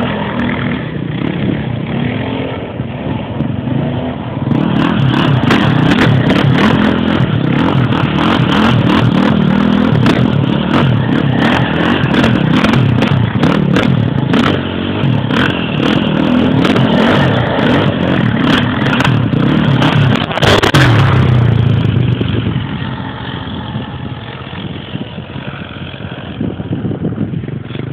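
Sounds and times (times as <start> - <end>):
off-road engines revving hard: 0.0 - 26.6.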